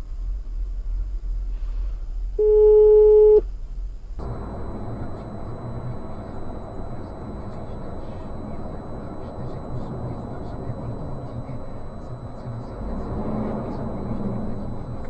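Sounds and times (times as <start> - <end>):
electronic beep: 4.2 - 15.0
road and engine noise: 4.2 - 15.0
road rumble: 4.2 - 15.0
thin high whine: 4.2 - 15.0.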